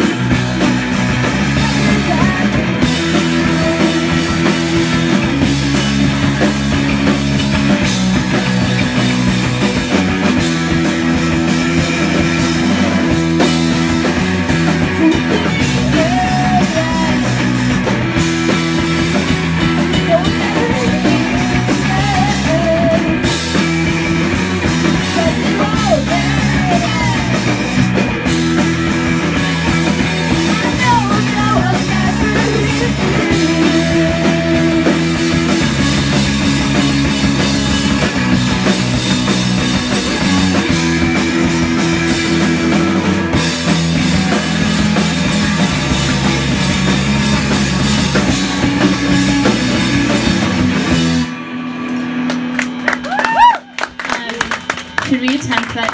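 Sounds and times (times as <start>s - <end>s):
bass guitar: 0.0s - 55.9s
drum kit: 0.0s - 55.9s
electric guitar: 0.0s - 55.9s
person singing: 1.5s - 5.3s, 14.8s - 17.5s, 19.7s - 23.3s, 24.9s - 27.6s, 30.2s - 35.6s.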